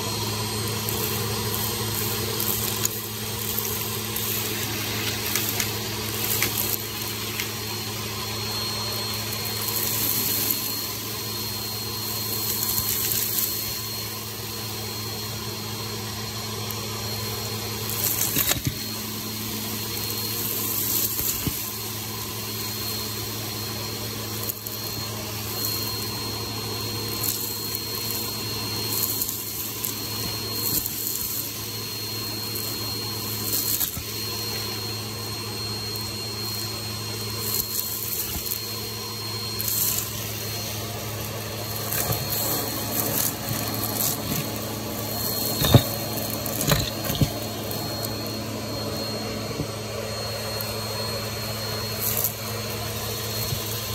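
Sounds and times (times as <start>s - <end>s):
vacuum cleaner running: 0.0s - 53.9s
debris rattling up vacuum hose: 0.2s - 14.0s, 17.8s - 19.1s, 19.7s - 22.4s, 39.6s - 50.5s.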